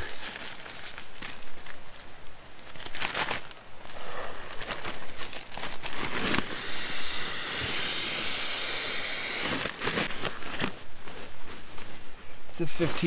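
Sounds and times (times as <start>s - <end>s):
nylon rustling: 0.0s - 6.4s, 9.5s - 13.0s.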